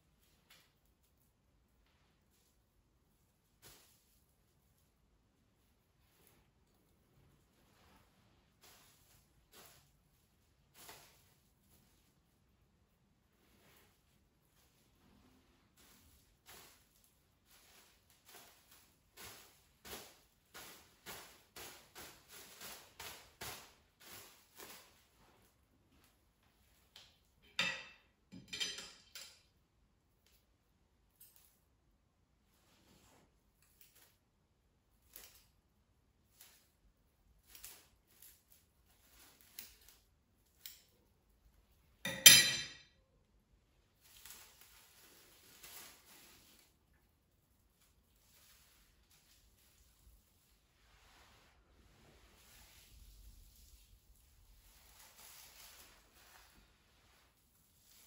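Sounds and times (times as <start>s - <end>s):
plastic crinkling: 0.1s - 26.1s, 43.9s - 50.9s, 52.4s - 58.0s
plastic bag crinkling: 43.9s - 50.3s.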